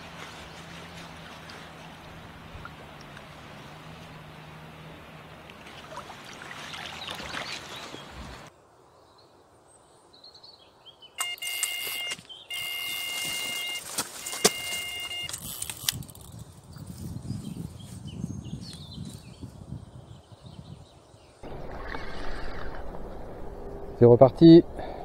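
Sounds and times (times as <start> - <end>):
electronic bite alarm tones: 11.2 - 15.4.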